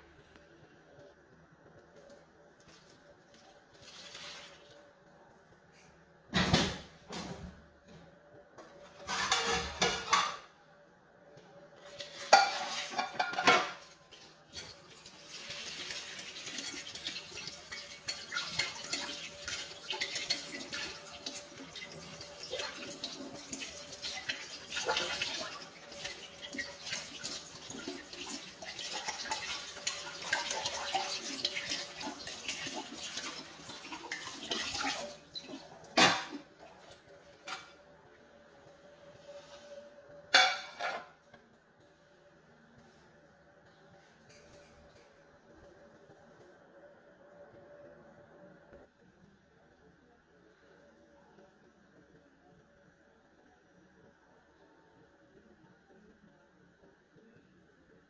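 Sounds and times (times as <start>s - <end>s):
dishes clinking: 8.8s - 10.6s, 11.9s - 14.8s, 16.4s - 28.0s, 40.3s - 41.2s
dishes clattering loudly: 8.9s - 10.5s, 12.0s - 14.0s, 15.9s - 35.2s, 35.9s - 36.5s, 40.3s - 41.2s
tap water running into sink: 14.6s - 36.4s.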